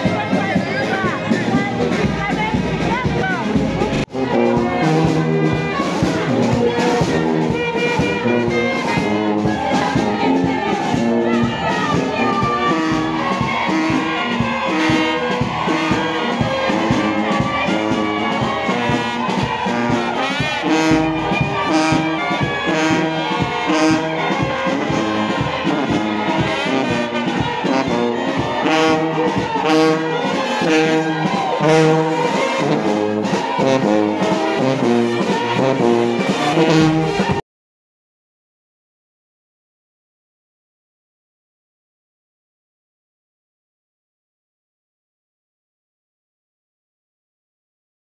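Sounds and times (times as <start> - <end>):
brass band playing: 0.0 - 37.4.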